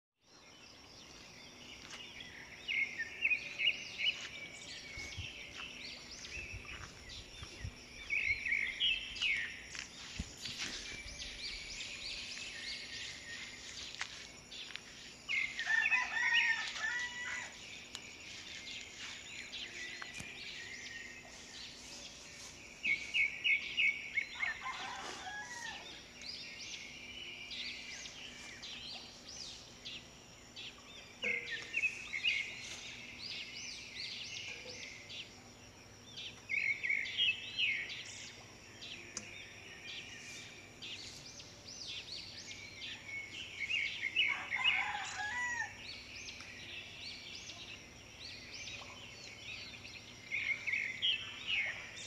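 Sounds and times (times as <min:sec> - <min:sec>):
rooster crowing: 0:15.6 - 0:17.6, 0:24.4 - 0:26.0, 0:44.2 - 0:45.8.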